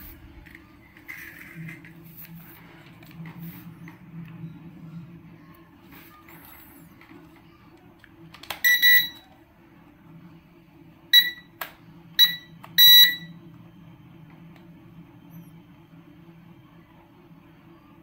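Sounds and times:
high-pitched electronic beeps: 8.6s - 9.2s, 11.2s - 11.5s, 12.2s - 13.3s.

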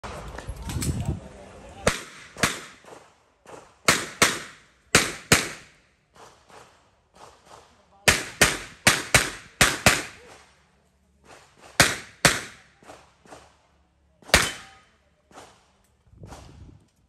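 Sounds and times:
pistol shots: 1.9s - 10.4s, 11.6s - 13.5s, 14.2s - 15.6s.

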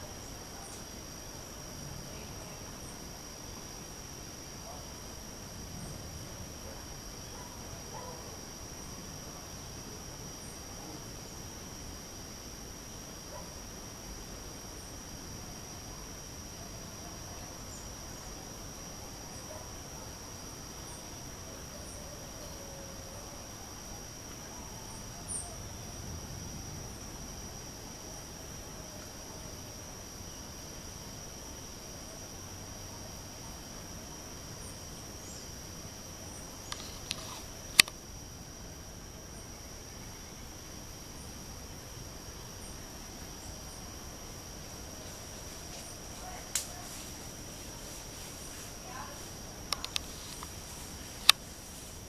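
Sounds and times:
insects buzzing: 0.0s - 52.0s.

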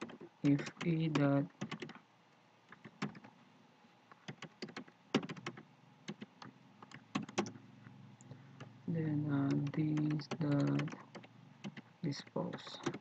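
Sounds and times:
keyboard key clicks: 4.2s - 7.6s, 9.4s - 11.9s.

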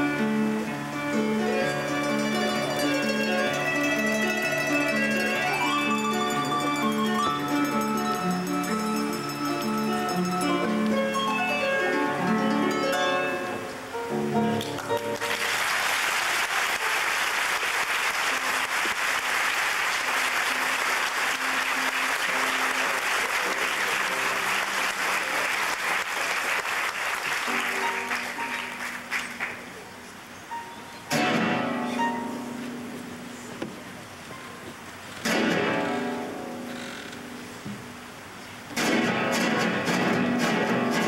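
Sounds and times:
harp playing: 0.0s - 15.3s, 20.2s - 25.4s, 27.4s - 29.1s, 30.5s - 33.0s
audience applause: 14.6s - 29.8s.

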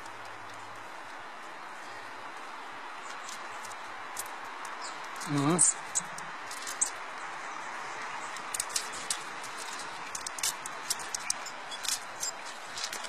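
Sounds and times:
small sharp clicks: 8.2s - 13.0s.

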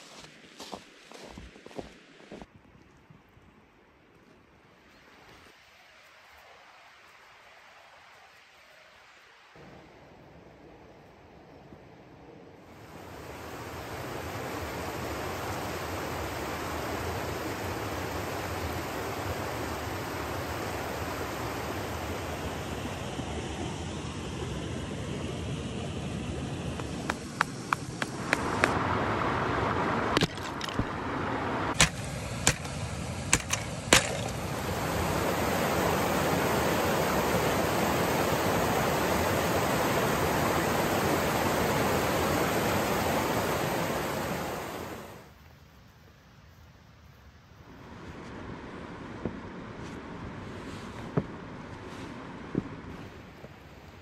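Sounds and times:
stream rushing over rocks: 12.8s - 23.1s, 26.0s - 45.3s.

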